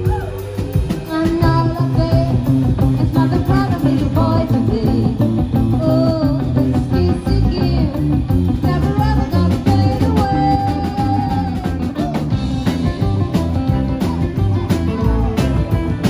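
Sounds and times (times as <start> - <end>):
drum kit beat: 0.0 - 16.0
electric guitars: 0.0 - 16.0
woman singing: 0.1 - 12.0
upright double bass: 1.1 - 16.0.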